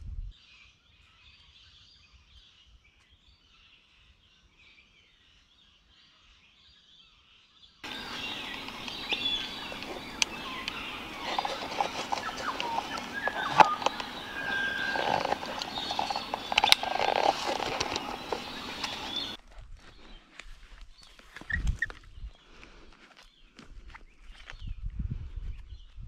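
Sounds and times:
faint high chirping: 7.8s - 19.4s
sharp clicks: 7.8s - 19.4s
bird calls and chirps: 7.8s - 20.3s, 20.9s - 22.6s.

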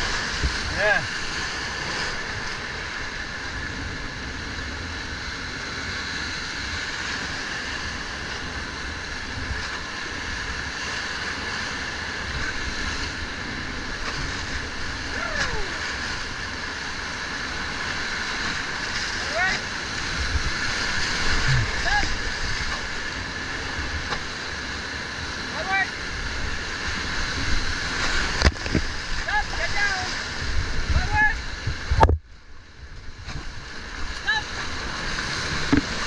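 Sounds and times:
river whitewater rushing: 0.0s - 3.8s, 6.4s - 31.6s
wind buffeting microphone: 26.1s - 34.1s.

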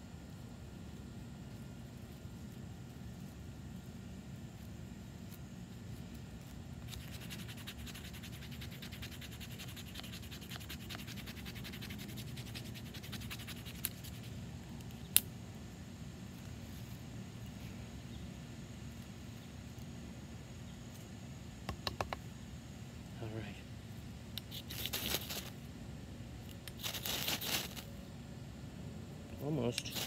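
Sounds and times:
knife scraping a ferro rod: 6.8s - 14.3s.

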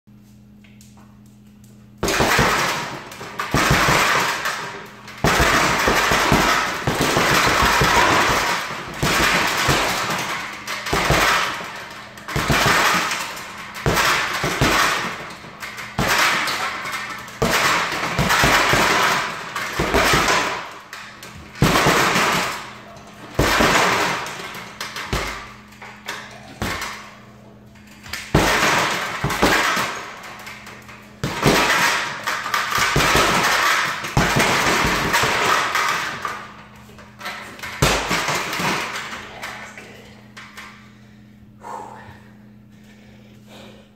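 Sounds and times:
fists punching heavy bag: 2.0s - 25.6s, 26.2s - 27.1s, 28.0s - 36.4s, 37.6s - 39.2s.

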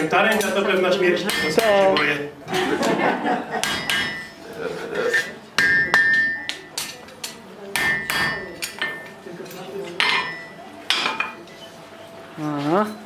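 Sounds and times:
hammer striking metal on anvil: 1.3s - 2.1s, 3.6s - 4.4s, 5.6s - 7.0s, 7.8s - 9.2s, 10.0s - 11.4s.

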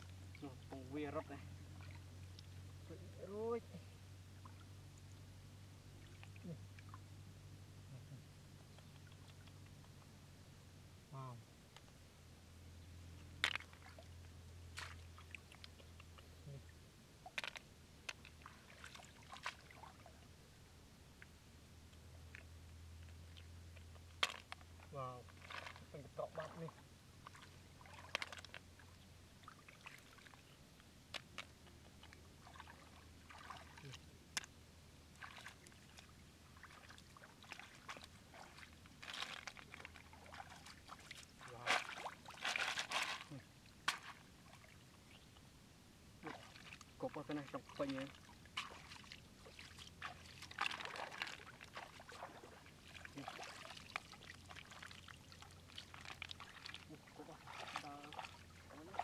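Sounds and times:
splashing of shallow water: 13.4s - 16.1s, 17.2s - 20.2s, 25.2s - 30.5s, 31.1s - 34.0s, 35.1s - 44.8s, 46.2s - 59.0s.

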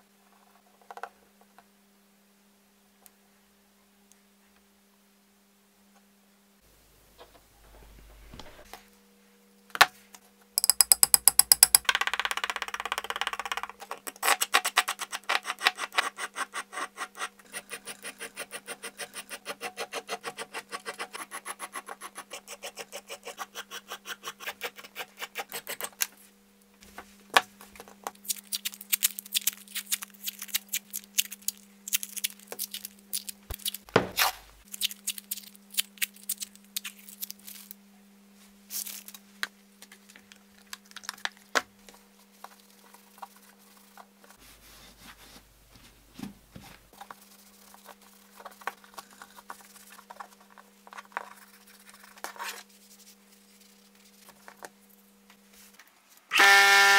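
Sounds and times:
steel file rubbing metal: 16.0s - 25.7s
thump: 33.9s - 34.2s.

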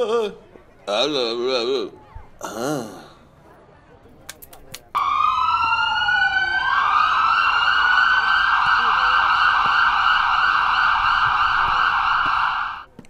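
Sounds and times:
fire engine sirens wailing: 5.0s - 12.9s.

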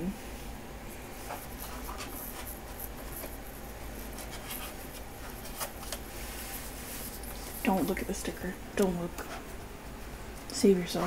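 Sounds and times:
paper rustling: 1.2s - 9.5s.

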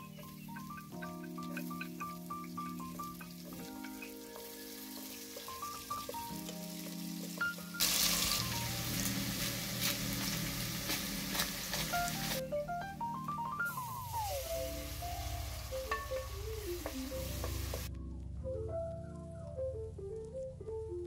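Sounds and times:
light mallet background music: 0.0s - 10.6s, 11.8s - 21.0s
onion and garlic sizzling: 0.0s - 17.9s.

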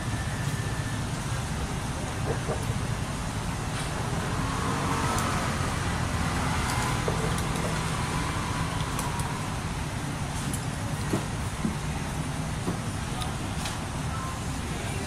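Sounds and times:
street traffic rumble: 0.0s - 15.0s
engine note rising and falling: 3.6s - 10.2s.

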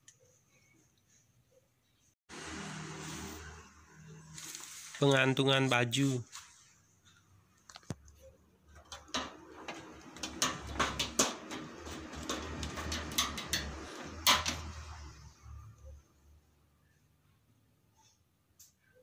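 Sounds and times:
rustling: 4.3s - 5.0s
objects clicking and clattering: 8.8s - 15.0s.

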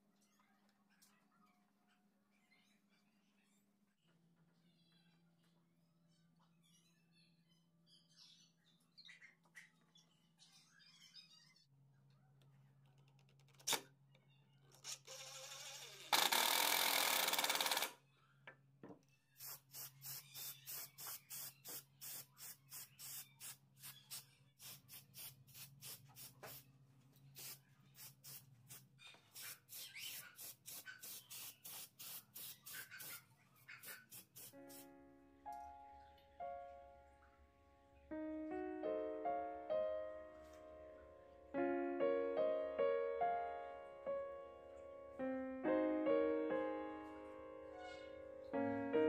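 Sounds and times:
spray can hissing: 19.4s - 26.6s, 27.4s - 33.2s, 33.8s - 34.9s.

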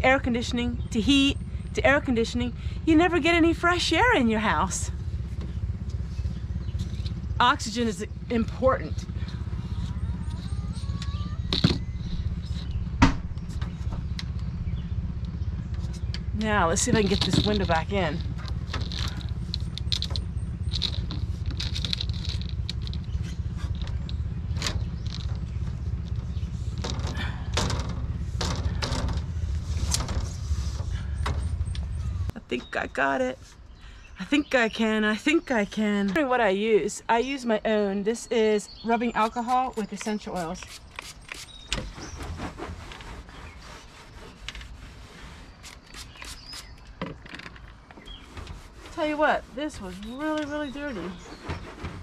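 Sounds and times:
steady low rumble: 0.0s - 47.0s
hand tool scrubbing door track: 16.6s - 25.6s, 26.2s - 32.0s, 39.3s - 46.5s, 47.4s - 52.0s.

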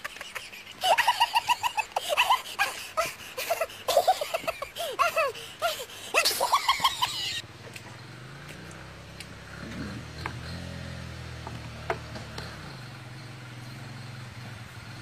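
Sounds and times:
people laughing: 0.0s - 7.4s.

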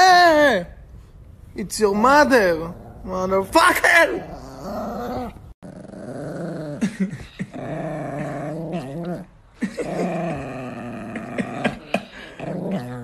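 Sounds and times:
small dog growling: 4.2s - 13.0s.

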